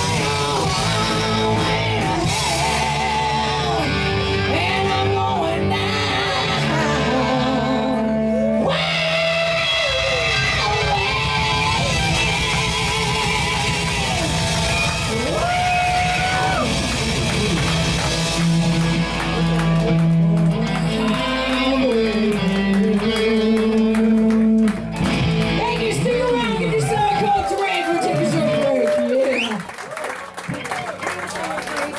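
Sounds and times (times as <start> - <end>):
person singing: 0.0 - 15.4, 18.2 - 24.9
hard rock band playing: 0.0 - 28.5
distorted electric guitars: 0.0 - 28.6.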